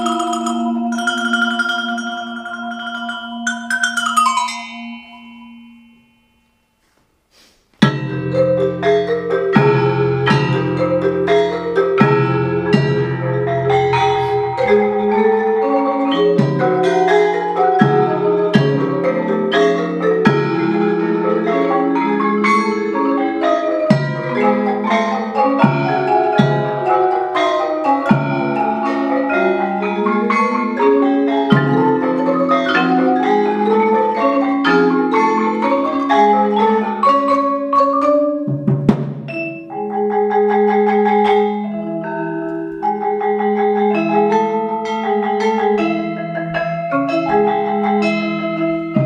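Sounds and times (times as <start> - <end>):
mallet percussion ensemble: 0.0 - 6.6, 7.8 - 49.0
low accented strikes: 7.8 - 19.0.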